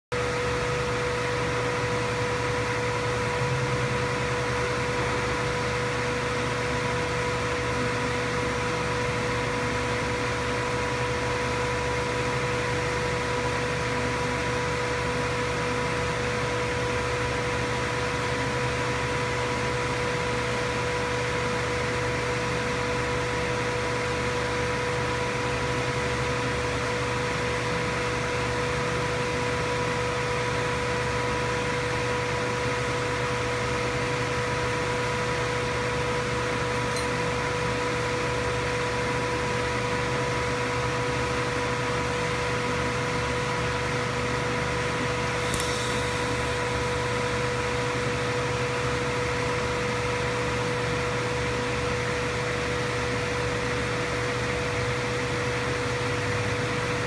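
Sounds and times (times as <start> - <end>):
machine hum with high whine: 0.1 - 57.0
hiss: 45.3 - 48.0.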